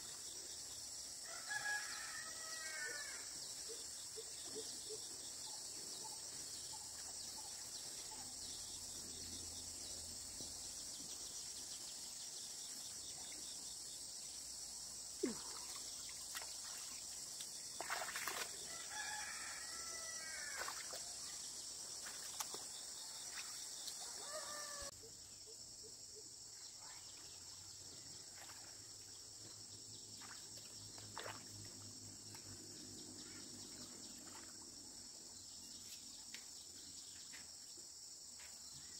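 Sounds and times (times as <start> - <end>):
insects droning: 0.0 - 38.9
rooster crowing: 1.2 - 3.2, 18.7 - 20.6, 24.2 - 24.9.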